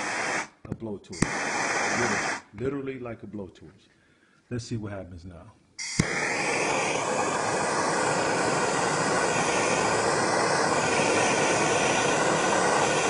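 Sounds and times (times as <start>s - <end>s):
blowtorch hissing: 0.0s - 0.6s, 1.2s - 2.5s, 5.8s - 13.0s.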